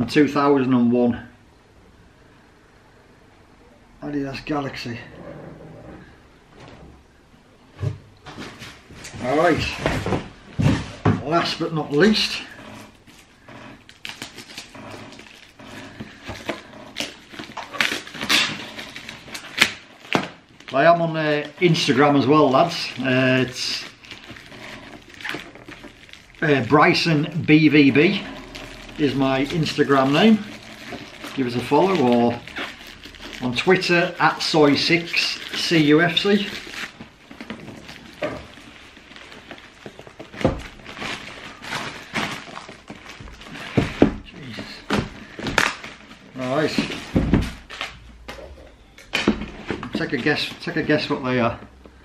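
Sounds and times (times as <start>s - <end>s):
plastic wrap crinkling and tearing: 8.8s - 48.1s.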